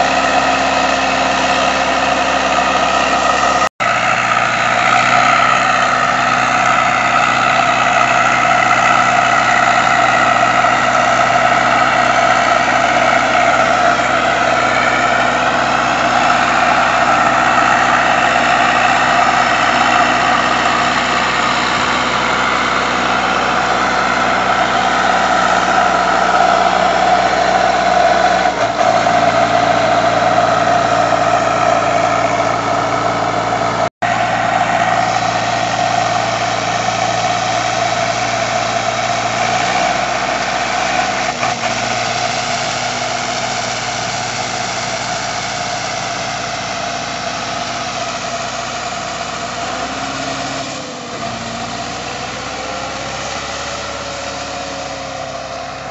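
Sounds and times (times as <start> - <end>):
tractor diesel engine running: 0.0 - 55.9.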